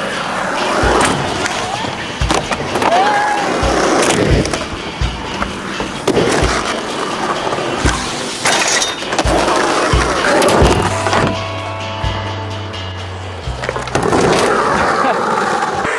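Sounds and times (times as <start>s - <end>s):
skateboard clacking: 0.0s - 11.4s
skateboard wheels rolling on concrete: 0.0s - 15.9s
music with thumping drum beat: 0.7s - 12.9s.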